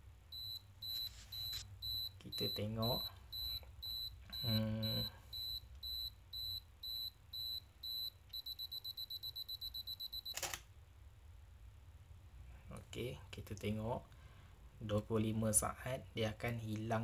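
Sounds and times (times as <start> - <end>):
camera self-timer beeping: 0.4 - 10.6.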